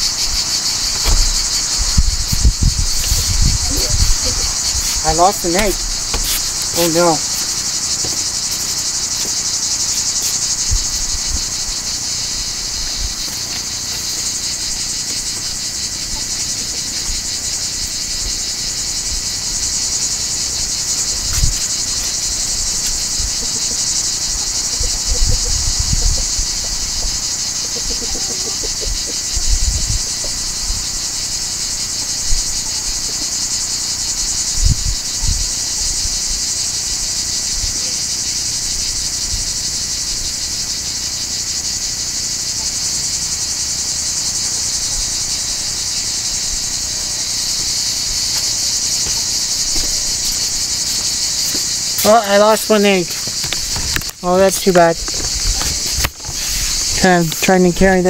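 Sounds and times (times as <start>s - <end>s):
insects buzzing: 0.0s - 58.0s
low thumps: 0.9s - 8.5s.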